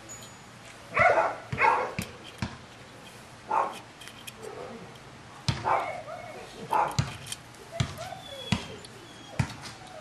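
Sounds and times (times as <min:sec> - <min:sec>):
dog barking: 0:01.0 - 0:02.0, 0:03.5 - 0:03.8, 0:05.6 - 0:07.0.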